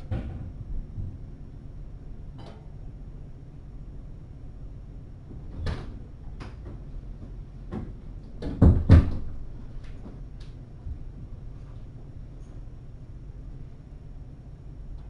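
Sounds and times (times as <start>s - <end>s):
sharp knocks and clatters: 5.3s - 10.2s.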